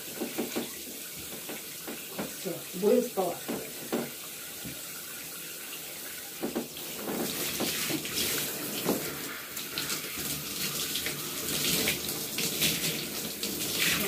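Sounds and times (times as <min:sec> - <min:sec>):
tap water running: 0:00.0 - 0:14.0
water splashes: 0:00.0 - 0:14.0.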